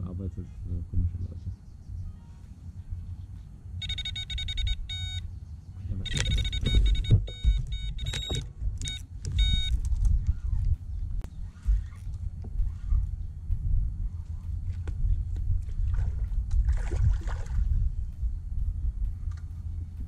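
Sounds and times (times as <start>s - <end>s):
bite alarm high beeps: 3.8s - 5.3s, 6.0s - 9.8s.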